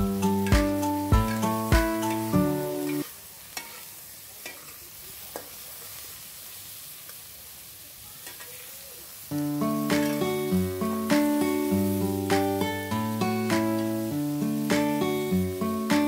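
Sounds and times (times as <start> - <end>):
background music: 0.0 - 3.0, 9.5 - 16.0
food sizzling in a wok: 0.0 - 16.0
metal spatula stirring: 3.6 - 4.8.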